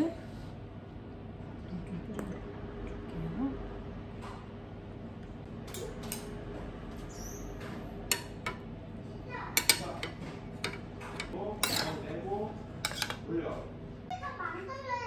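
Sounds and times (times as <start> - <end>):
appliance hum: 0.0 - 15.0
spoons clinking on steel dishes: 9.6 - 12.0, 12.8 - 13.2.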